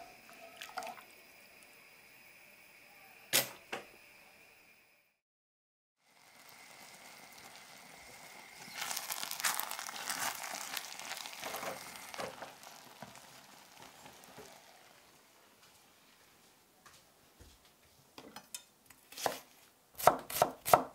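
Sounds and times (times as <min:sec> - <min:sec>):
spatula stirring rice in a pot: 0:06.4 - 0:16.4.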